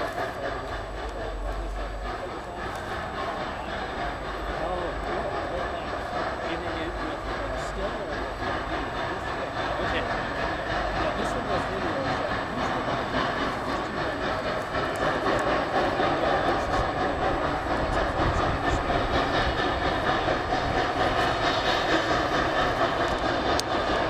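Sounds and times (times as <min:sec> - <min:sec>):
steam locomotive exhaust beat: 0:00.0 - 0:24.0
train cars rolling and clattering: 0:00.0 - 0:24.0.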